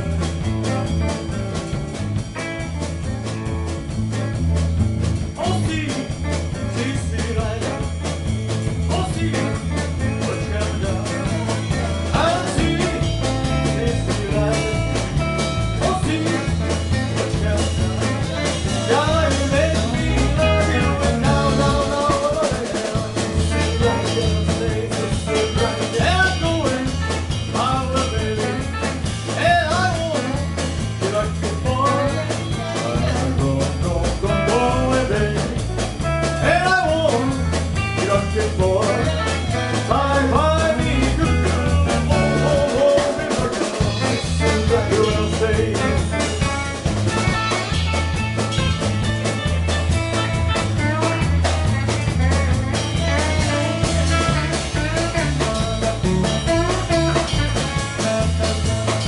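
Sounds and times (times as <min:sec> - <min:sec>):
rock band playing: 0:00.0 - 0:59.0
man singing: 0:05.4 - 0:47.6, 0:53.0 - 0:59.0.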